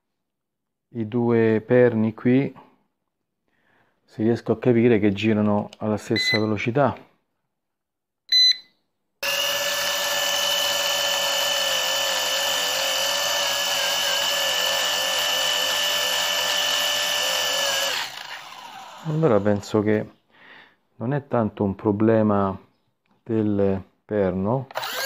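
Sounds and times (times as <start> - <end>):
short beep: 6.2 - 6.6, 8.3 - 8.8
drone motors whining: 9.2 - 19.6, 24.8 - 25.0.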